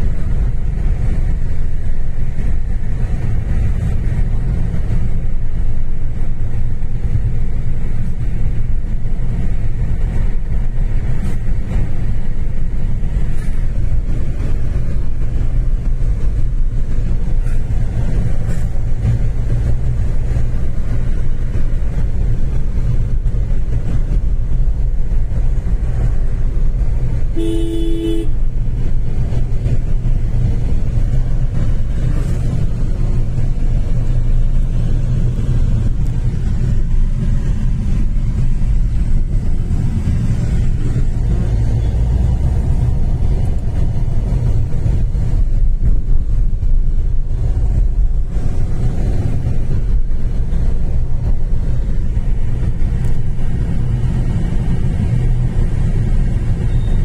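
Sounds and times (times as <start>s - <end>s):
vehicle rumble on road: 0.0s - 57.0s
car horn honk: 27.3s - 28.4s.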